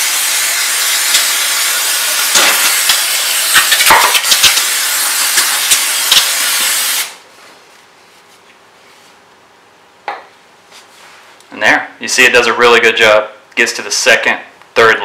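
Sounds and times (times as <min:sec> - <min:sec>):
aerosol can spraying hiss: 0:00.0 - 0:07.2.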